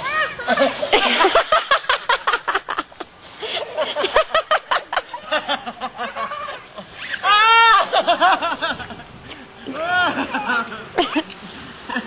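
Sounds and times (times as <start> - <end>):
laughter in rapid bursts: 0.2 - 6.9, 7.8 - 9.0.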